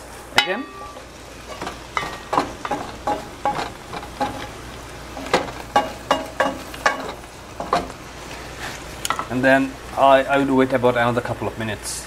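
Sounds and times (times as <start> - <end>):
greens sizzling in frying pan: 0.0 - 12.0.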